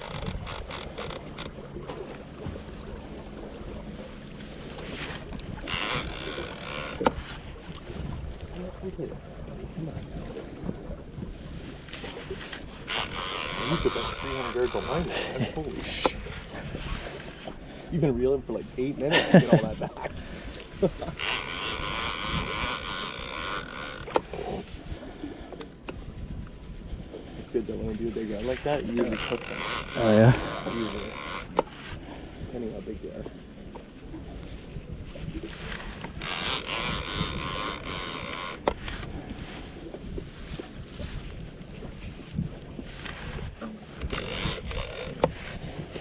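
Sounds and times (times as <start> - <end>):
fishing reel drag whining: 0.0 - 1.7, 4.5 - 7.6, 12.1 - 15.2, 20.1 - 24.6, 28.3 - 32.1, 35.3 - 39.8, 42.9 - 46.0
wind and water rumble: 0.0 - 46.0
sharp reel click: 36.1 - 39.1, 44.0 - 45.3.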